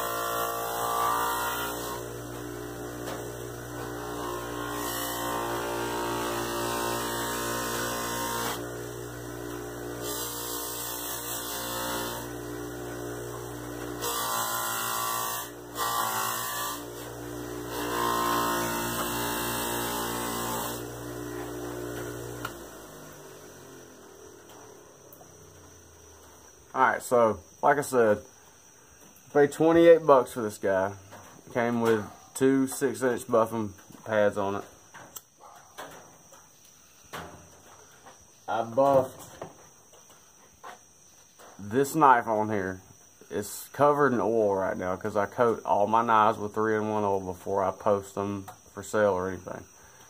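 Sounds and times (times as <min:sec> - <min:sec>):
motor winding down: 0:00.0 - 0:25.9
bench buffer motor humming: 0:00.0 - 0:26.6.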